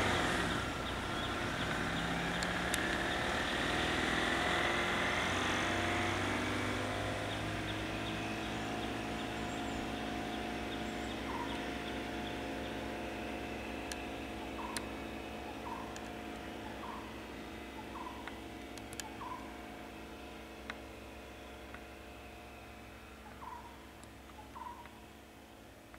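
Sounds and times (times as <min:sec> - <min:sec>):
vehicle engine idling: 0:00.0 - 0:25.9
sharp clicks: 0:02.3 - 0:03.2, 0:14.6 - 0:14.9, 0:15.7 - 0:16.2, 0:18.1 - 0:19.4.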